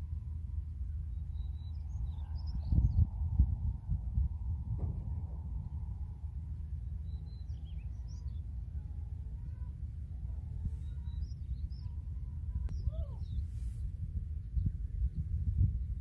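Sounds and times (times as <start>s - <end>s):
wind rumble on microphone: 0.0s - 16.0s
faint high bird chirps: 7.0s - 15.2s.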